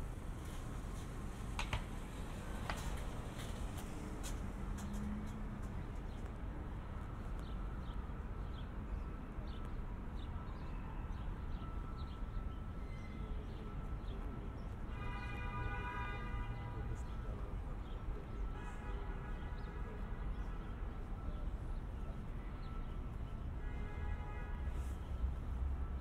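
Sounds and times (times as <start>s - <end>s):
low hum of city traffic: 0.0s - 26.0s
footstep clicks on paving: 1.5s - 6.3s.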